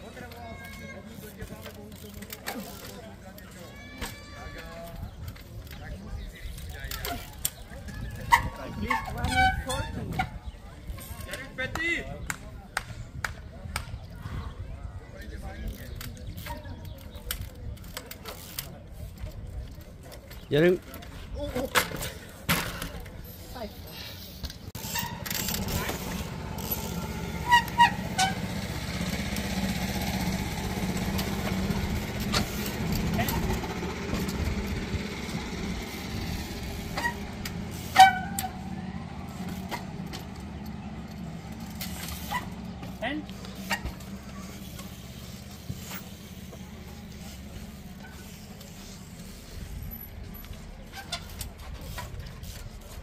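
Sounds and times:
short high squeaks: 0:08.0 - 0:10.5, 0:23.3 - 0:30.2, 0:36.0 - 0:38.9, 0:41.6 - 0:46.2, 0:47.3 - 0:52.7
engine droning: 0:24.7 - 0:52.2.

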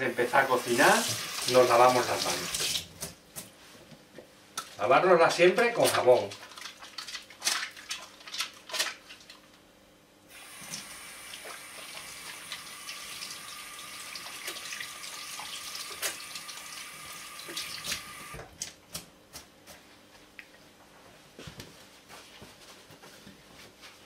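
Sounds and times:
tap water splashing into sink: 0:00.9 - 0:03.2, 0:14.0 - 0:18.4.

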